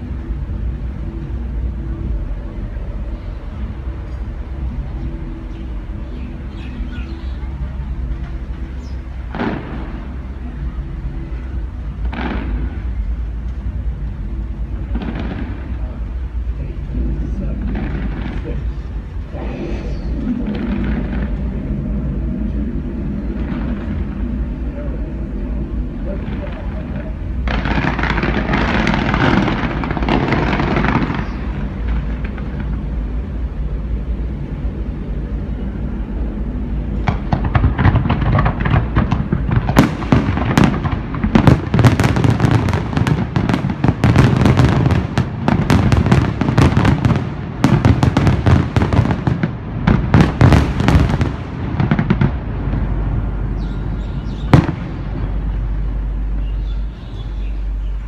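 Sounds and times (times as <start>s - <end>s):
dense rushing noise: 0.0s - 58.0s
firework bursts and crackles: 7.5s - 56.4s
loud firework bang: 9.3s - 10.2s, 37.0s - 52.5s, 54.3s - 55.3s.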